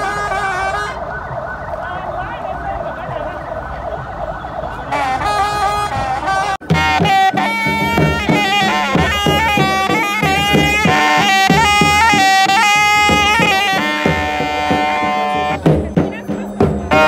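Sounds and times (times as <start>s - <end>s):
shawm playing piercing melody: 0.0s - 17.0s
drum strokes: 4.9s - 17.0s.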